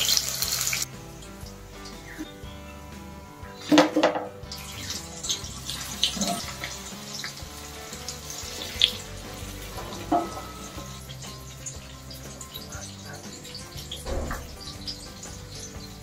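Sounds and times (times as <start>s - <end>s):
prawns bubbling in hot oil: 0.0s - 2.6s, 3.7s - 16.0s
background music: 0.0s - 16.0s
spoon clinking and scraping pan: 3.7s - 16.0s.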